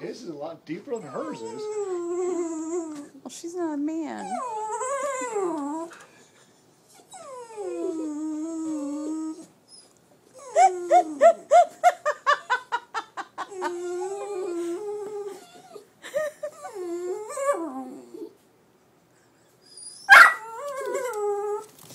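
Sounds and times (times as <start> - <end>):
dogs whining: 0.9 - 3.2, 4.2 - 6.0, 6.9 - 12.4, 13.4 - 18.4, 19.4 - 21.7
dogs yipping: 19.8 - 21.6.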